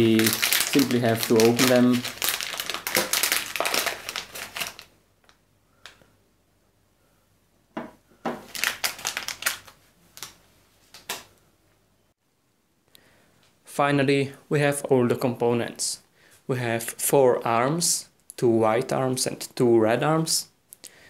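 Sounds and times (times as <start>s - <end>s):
plastic bag crinkling: 0.0s - 4.9s, 8.4s - 10.4s.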